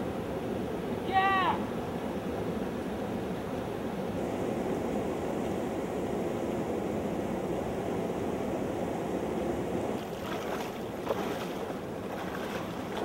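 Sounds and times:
river water running: 0.0s - 13.0s
person wading through water: 10.0s - 13.0s.

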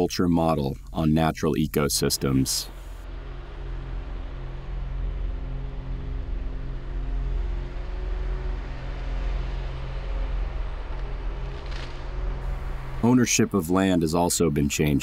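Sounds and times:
diesel engine running under load: 2.2s - 13.9s.

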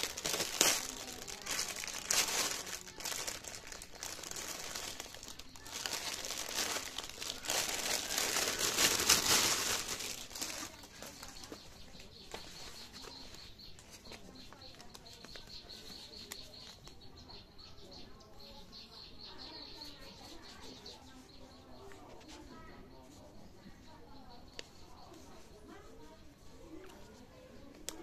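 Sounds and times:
plastic bag crinkling: 0.0s - 11.6s.

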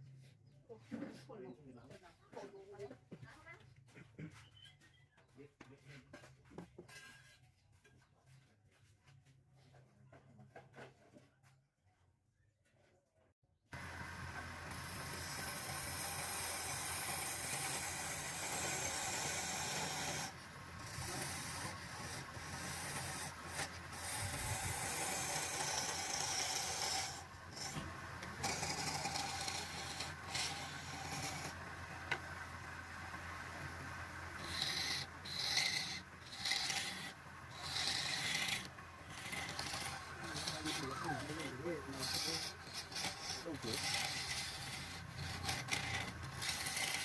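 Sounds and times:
chisel scraping spinning wood: 6.1s - 8.1s, 13.8s - 47.0s
wood lathe humming: 13.8s - 47.0s.

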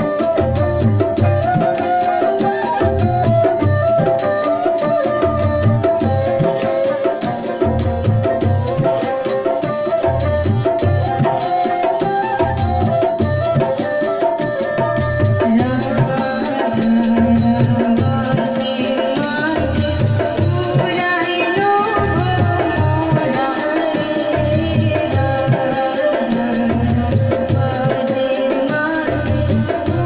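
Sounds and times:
barrel drum: 0.0s - 30.0s
small hand cymbals: 0.0s - 30.0s
woman singing: 10.9s - 30.0s.

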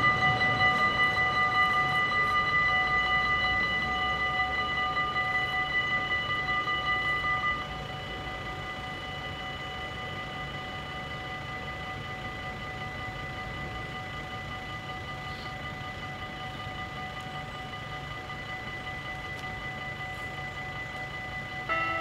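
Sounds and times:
quieter bell ringing: 0.0s - 9.3s, 17.6s - 22.0s
level crossing bells ringing rapidly: 0.0s - 22.0s.

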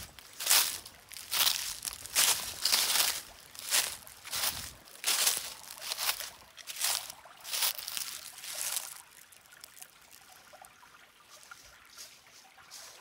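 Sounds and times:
footsteps crunching dry leaves: 0.0s - 10.3s, 11.4s - 13.0s
creek trickling: 0.0s - 13.0s.

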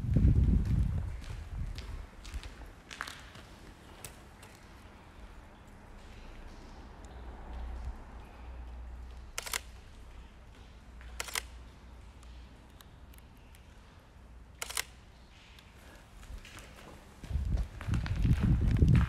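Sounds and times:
steady low rumble: 0.0s - 2.8s, 17.2s - 19.0s
camera shutter clicks: 9.4s - 9.8s, 11.2s - 11.6s, 14.6s - 15.0s.

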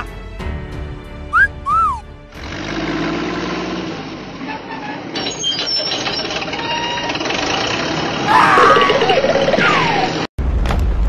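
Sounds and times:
mechanical rumbling and clattering: 4.7s - 11.0s.

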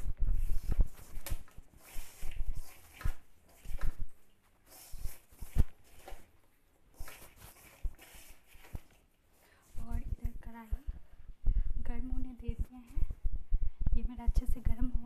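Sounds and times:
hand mixing flour in a metal bowl: 0.0s - 10.8s.

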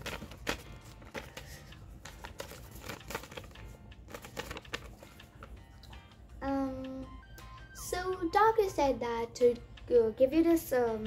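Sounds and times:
paper rustling and crinkling: 0.0s - 5.5s
faint background music: 0.0s - 11.0s.

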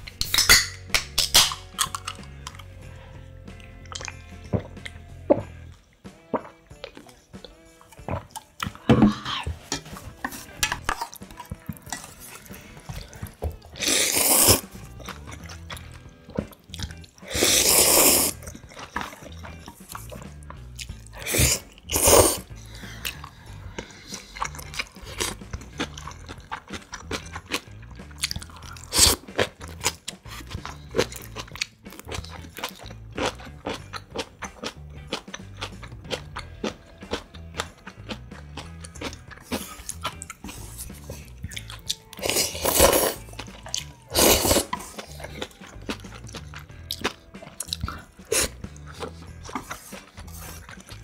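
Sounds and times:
chewing: 3.6s - 5.8s, 10.7s - 51.0s
person slurping noodles: 13.8s - 14.8s, 17.2s - 19.2s, 21.2s - 22.5s, 42.2s - 43.3s, 44.0s - 45.5s, 47.6s - 51.0s.

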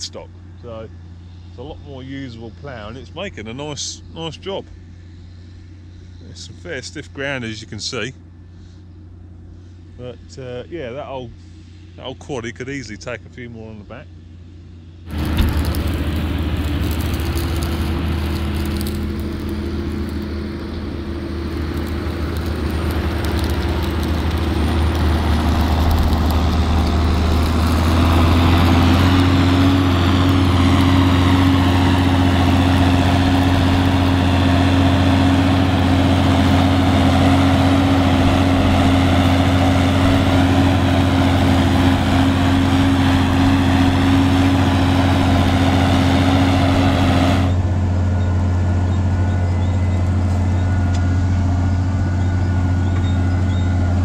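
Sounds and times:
tractor diesel engine drone: 0.0s - 54.0s.

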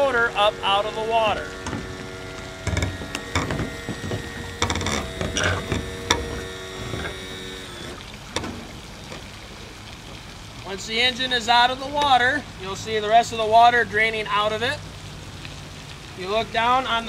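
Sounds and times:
trim motor humming: 0.0s - 8.5s
mechanical clicking: 1.3s - 8.1s.

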